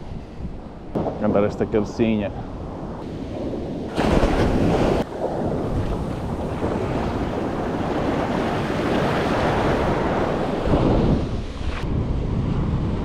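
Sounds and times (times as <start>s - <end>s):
wind buffeting microphone: 0.0s - 13.0s
sea surf breaking on shore: 2.8s - 13.0s.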